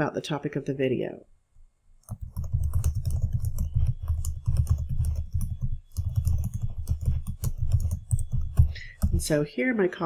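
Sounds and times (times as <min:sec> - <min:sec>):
fast typing on keyboard: 0:02.0 - 0:09.4.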